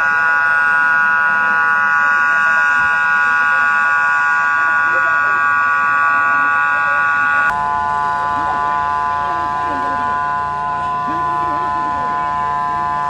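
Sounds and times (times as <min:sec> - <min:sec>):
faint voices: 0:00.0 - 0:13.0
loud buzzing tone: 0:00.0 - 0:13.0.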